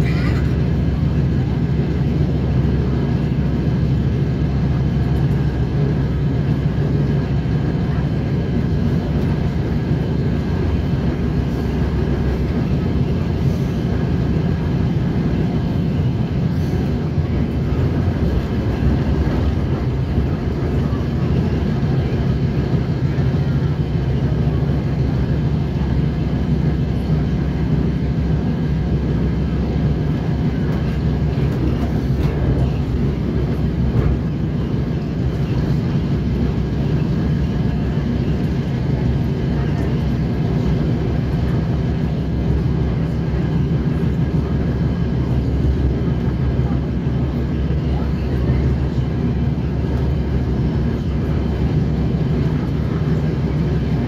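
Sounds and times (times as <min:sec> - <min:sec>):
train engine and wheels droning: 0:00.0 - 0:54.0.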